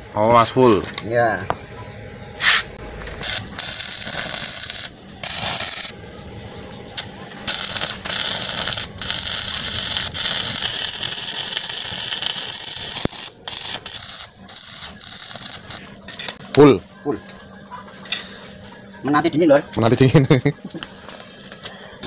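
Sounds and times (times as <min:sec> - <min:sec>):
welding arc crackling: 0:02.4 - 0:06.0, 0:06.9 - 0:16.4.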